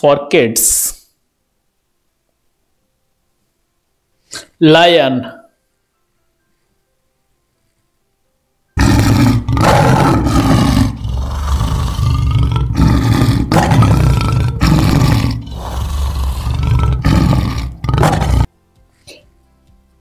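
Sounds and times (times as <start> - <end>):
lion roaring and growling: 8.8 - 18.5.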